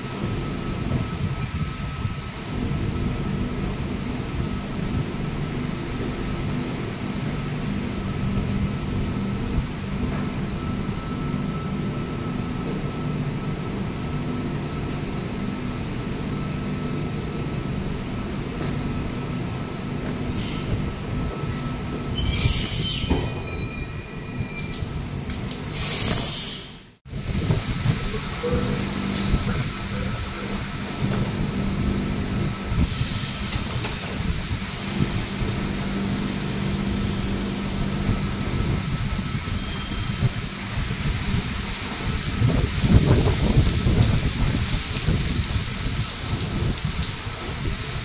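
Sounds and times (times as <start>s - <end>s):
electric train running hum: 0.0s - 25.7s, 27.1s - 48.0s
high squeals falling in pitch: 22.1s - 24.7s, 25.8s - 26.9s, 39.4s - 40.2s.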